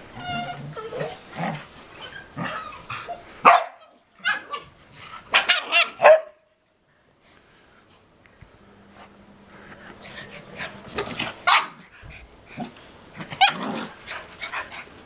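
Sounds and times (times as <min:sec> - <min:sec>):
dogs growling and yipping: 0:00.0 - 0:03.5, 0:04.2 - 0:06.0, 0:09.6 - 0:15.0
dogs barking: 0:02.0 - 0:04.7, 0:05.3 - 0:06.4, 0:10.6 - 0:11.8.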